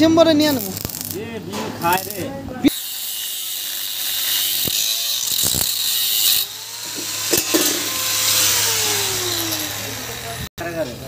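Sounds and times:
angle grinder cutting steel: 1.9s - 10.5s.

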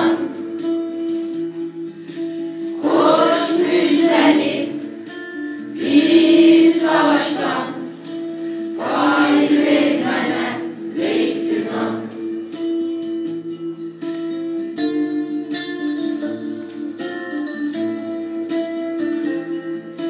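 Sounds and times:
children singing in a choir: 0.0s - 0.6s, 2.8s - 5.0s, 5.7s - 8.1s, 8.7s - 12.4s
held instrumental accompaniment: 0.0s - 20.0s.

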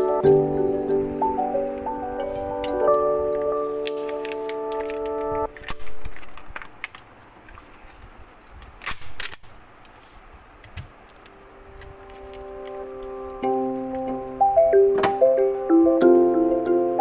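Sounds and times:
chiming background music: 0.0s - 5.5s
plastic film crackling: 2.2s - 14.3s.

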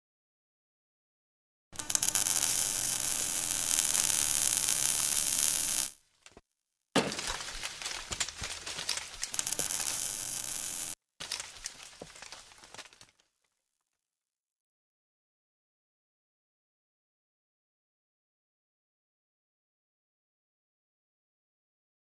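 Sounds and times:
crackling with small clicks: 1.8s - 6.0s, 7.2s - 13.4s
hissing crackling noise: 1.8s - 6.0s, 7.8s - 11.0s.

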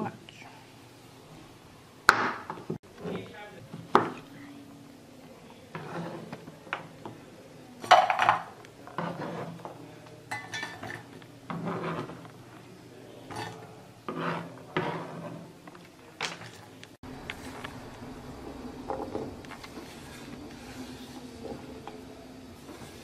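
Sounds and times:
knife scraping on cutting board: 5.7s - 6.4s, 8.9s - 9.8s, 10.8s - 12.4s, 13.3s - 15.6s.

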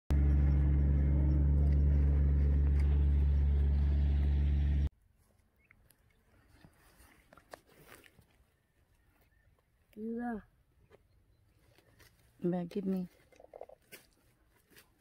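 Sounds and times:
car engine humming: 0.1s - 4.9s.

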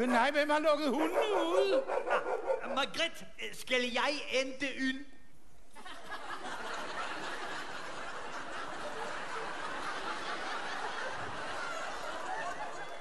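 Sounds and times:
audience laughing: 5.8s - 13.0s.

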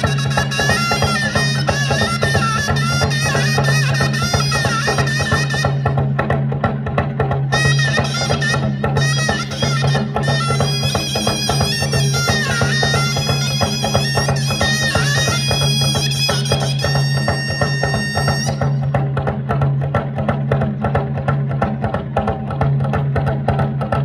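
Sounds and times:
reedy pipe melody: 0.0s - 19.8s
fast steady drumming: 0.0s - 24.0s.

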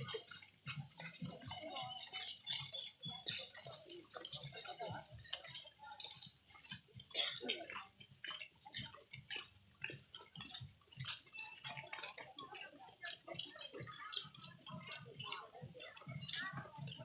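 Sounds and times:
crowd footsteps on pavement: 0.0s - 17.0s
faint chatter: 0.0s - 17.0s.

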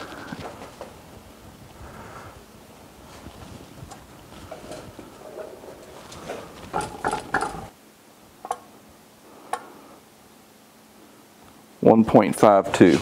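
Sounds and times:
sharp ringing metal knocks: 6.7s - 7.7s.

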